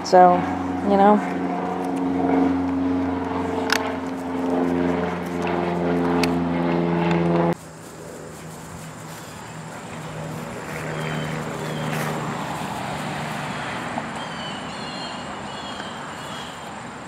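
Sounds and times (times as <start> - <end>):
motor engine running: 0.0 - 14.2.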